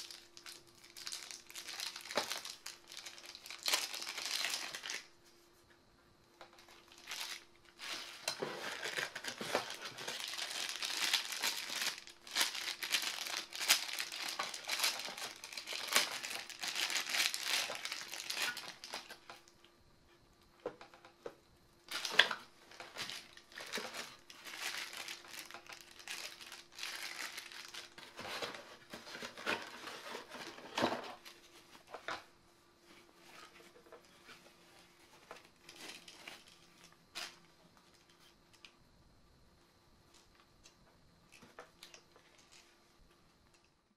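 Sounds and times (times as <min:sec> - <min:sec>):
plastic bags crinkling: 0:00.0 - 0:05.1, 0:06.4 - 0:19.5, 0:21.9 - 0:32.2, 0:35.1 - 0:38.0.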